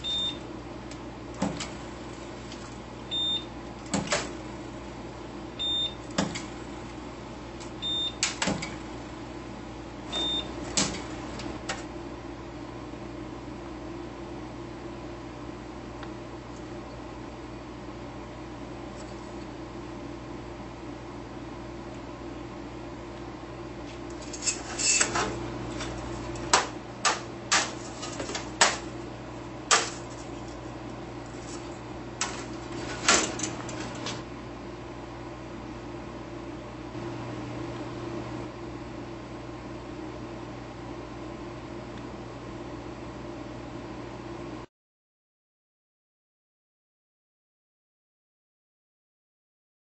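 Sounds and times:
steady low hum: 0:00.0 - 0:43.7
spot welder snapping: 0:24.0 - 0:29.0, 0:29.7 - 0:30.4.

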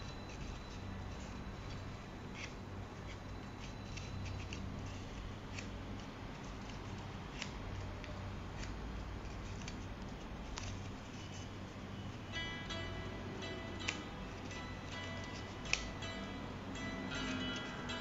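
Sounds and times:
low steady hum: 0:00.0 - 0:18.0
paper rustling and crinkling: 0:00.3 - 0:11.5.

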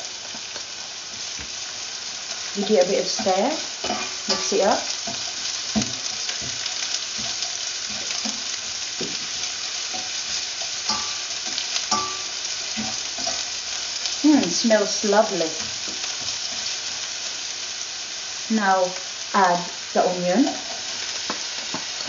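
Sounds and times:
ginger and garlic sizzling in oil: 0:00.0 - 0:22.0
spatula scraping and knocking pan: 0:02.6 - 0:13.6.

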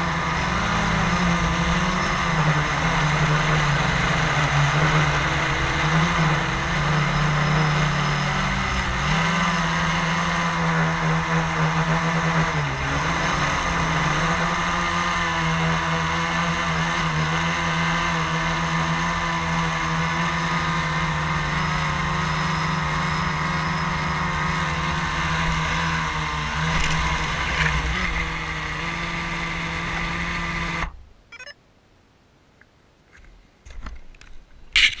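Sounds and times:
quadcopter motors whirring: 0:00.0 - 0:31.6.

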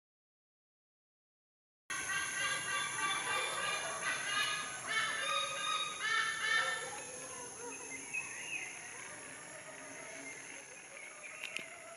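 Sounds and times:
eagle honking calls: 0:02.0 - 0:07.0.

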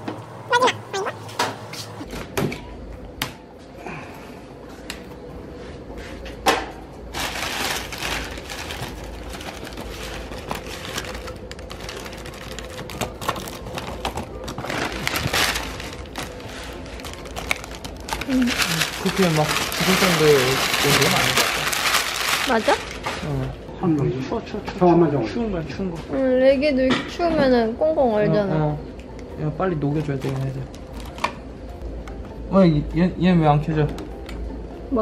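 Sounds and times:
newspaper crumpling and rustling: 0:07.1 - 0:23.5.

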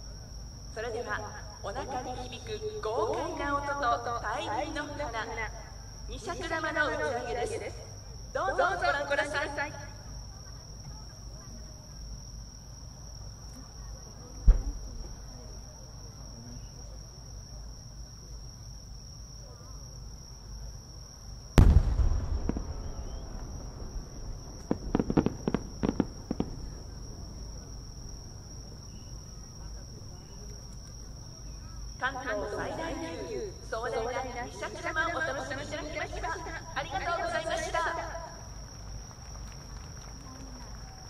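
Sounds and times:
insects trilling: 0:00.0 - 0:41.0
firework mortar thump: 0:14.4 - 0:15.2, 0:21.6 - 0:29.0
short crackling: 0:21.6 - 0:27.0
firework burst boom: 0:21.6 - 0:28.4.

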